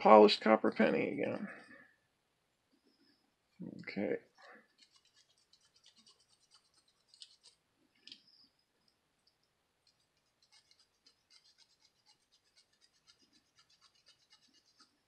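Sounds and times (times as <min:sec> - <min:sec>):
scouring pad scratching metal: 0:04.8 - 0:07.6, 0:10.4 - 0:15.0.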